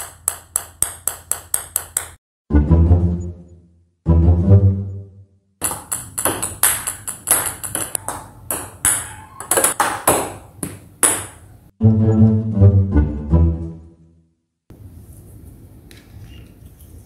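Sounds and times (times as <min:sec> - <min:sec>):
table tennis ball clacking: 0:00.0 - 0:02.2, 0:05.6 - 0:11.6
background music: 0:02.5 - 0:05.4, 0:11.8 - 0:14.3.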